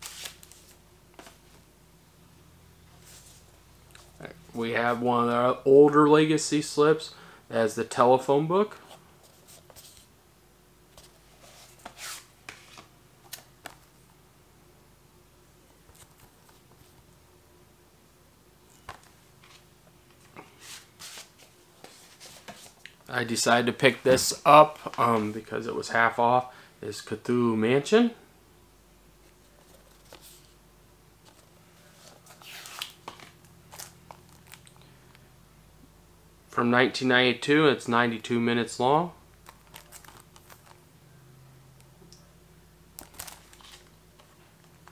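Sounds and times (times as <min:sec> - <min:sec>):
low room hum: 0:00.0 - 0:44.9
plastic wrap crinkling: 0:32.2 - 0:34.8, 0:39.4 - 0:40.8, 0:43.0 - 0:44.9.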